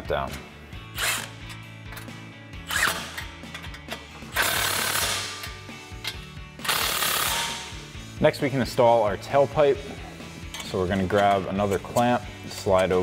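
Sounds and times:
background music: 0:00.0 - 0:13.0
impact driver whirring: 0:04.3 - 0:05.5, 0:06.6 - 0:07.7.

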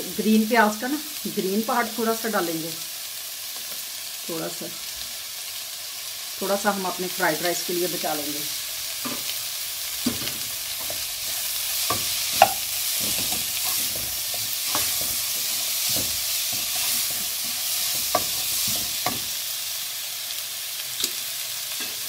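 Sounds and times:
vegetables sizzling in a wok: 0:00.0 - 0:22.0
metal spatula scraping a pan: 0:10.0 - 0:19.4.

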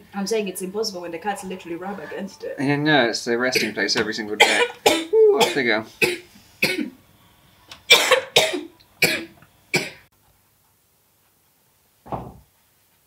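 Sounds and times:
person coughing: 0:03.6 - 0:03.8, 0:04.4 - 0:07.0, 0:07.9 - 0:10.0.

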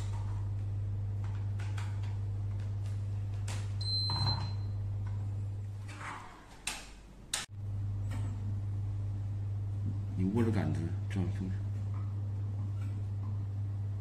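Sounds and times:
steady low hum: 0:00.0 - 0:06.0, 0:07.0 - 0:14.0.

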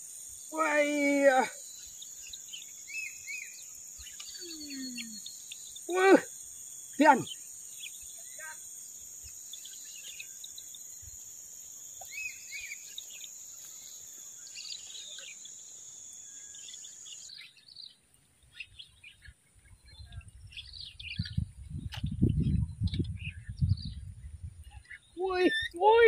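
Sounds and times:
high insect drone: 0:00.0 - 0:18.0
wild birds chirping: 0:00.0 - 0:26.0.

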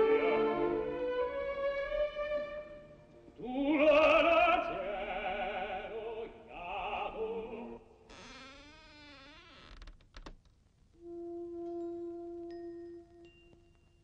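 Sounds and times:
operatic singing: 0:00.0 - 0:01.6, 0:03.3 - 0:07.9.

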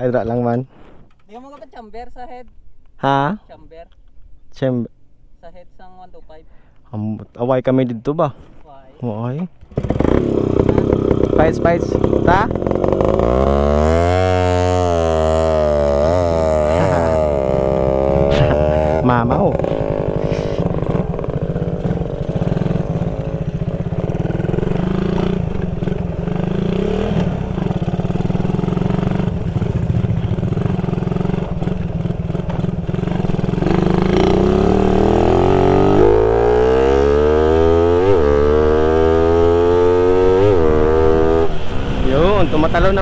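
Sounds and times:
motorcycle engine: 0:09.6 - 0:43.0.

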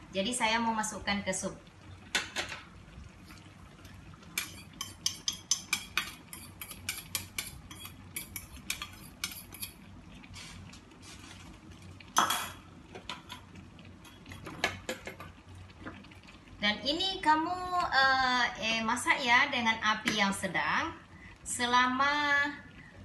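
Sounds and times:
ladle stirring in pot: 0:03.2 - 0:16.2
metal spoon scraping steel bowl: 0:04.4 - 0:09.8.

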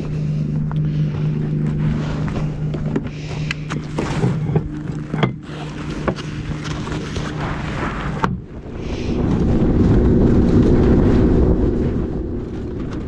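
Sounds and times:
boat motor running: 0:00.0 - 0:13.0
wind rushing: 0:07.4 - 0:13.0.

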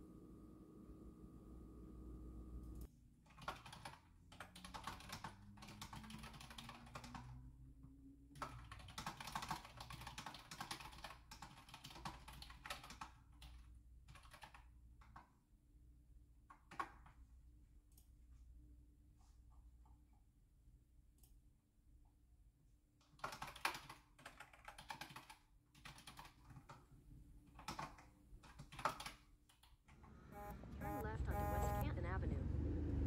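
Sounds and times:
typing on a keyboard: 0:03.3 - 0:07.4, 0:08.3 - 0:15.3, 0:16.5 - 0:17.2, 0:23.0 - 0:26.8, 0:27.5 - 0:29.9.

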